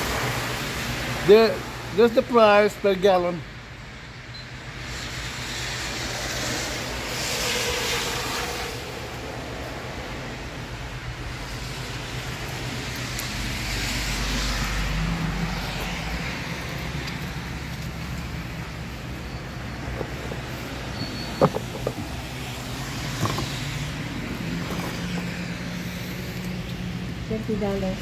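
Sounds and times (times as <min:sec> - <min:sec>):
tyre hiss on wet road: 0:00.0 - 0:02.0, 0:04.8 - 0:10.0, 0:22.2 - 0:27.0
steady low traffic hum: 0:00.0 - 0:28.0.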